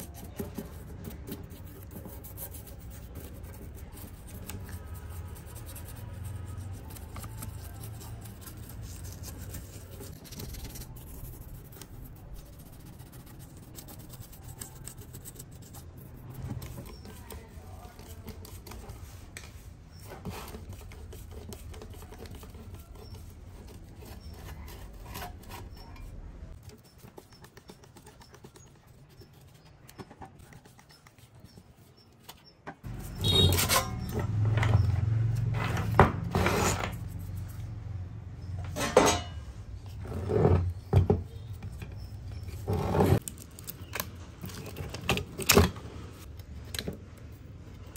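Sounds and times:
brush scratching circuit board: 0.0s - 35.5s, 36.3s - 38.6s.

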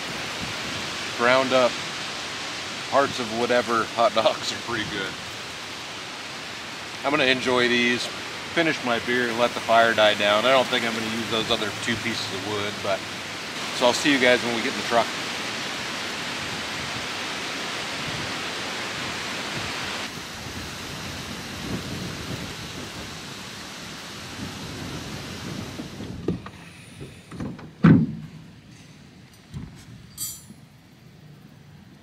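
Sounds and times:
wind blowing across microphone: 0.0s - 31.6s
knocks in truck bed: 27.3s - 28.4s
loud thump: 27.3s - 28.4s.

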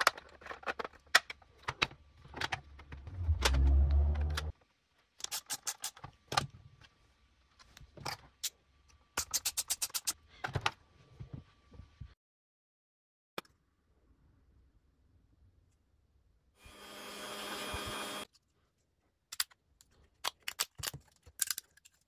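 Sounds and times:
plastic parts clicking and knocking: 0.0s - 4.5s, 19.3s - 22.0s
low rumble: 2.8s - 4.5s.

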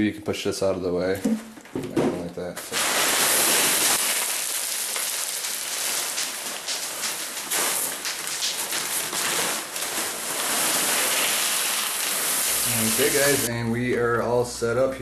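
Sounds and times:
clay pebbles pouring into pot: 2.6s - 13.5s.

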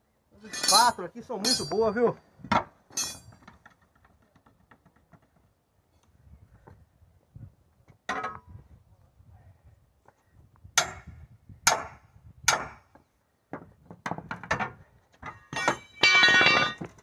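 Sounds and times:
metal tools striking: 0.5s - 2.1s, 2.9s - 3.4s, 15.5s - 16.8s.

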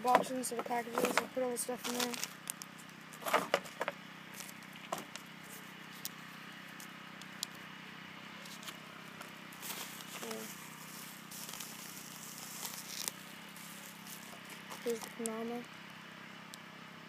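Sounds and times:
bubble wrap crinkling: 0.9s - 7.6s, 9.5s - 15.6s.

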